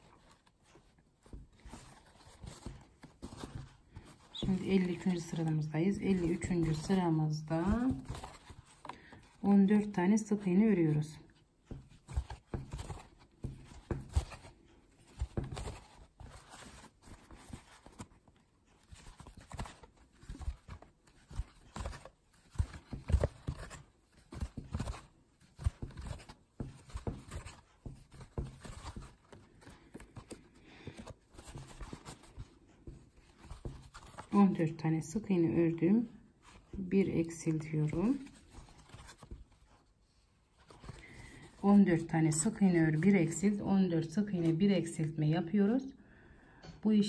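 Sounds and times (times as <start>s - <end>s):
crochet hook tapping and yarn rustling: 9.4s - 16.3s.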